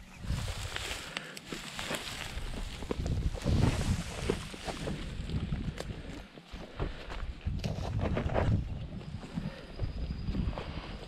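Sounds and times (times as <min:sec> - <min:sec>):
footsteps crunching on dry dirt: 0:00.0 - 0:11.0
loose soil and stones clicking: 0:00.3 - 0:06.4
wind buffeting microphone: 0:02.1 - 0:11.0.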